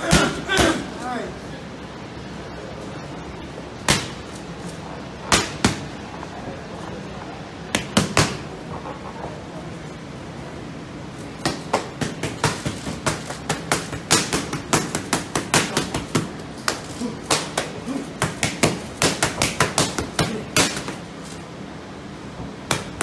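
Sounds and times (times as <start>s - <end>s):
boxing gloves hitting pads: 0.0s - 0.9s, 3.8s - 4.3s, 5.3s - 5.9s, 7.7s - 8.5s, 11.4s - 21.1s, 22.6s - 23.0s.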